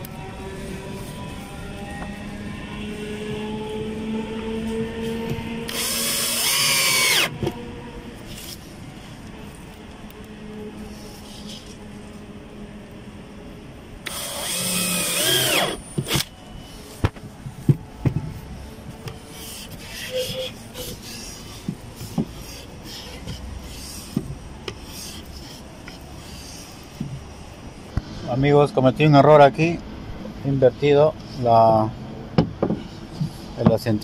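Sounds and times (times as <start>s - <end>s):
power drill into wood: 5.7s - 7.3s, 14.0s - 16.3s.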